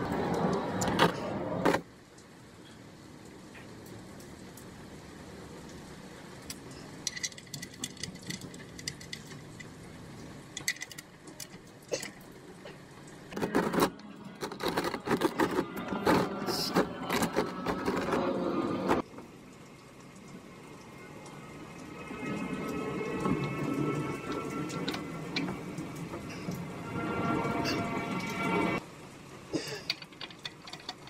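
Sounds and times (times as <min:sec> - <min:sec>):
oil filter clicking and scraping: 0:07.0 - 0:09.7, 0:13.3 - 0:18.3, 0:29.8 - 0:31.0.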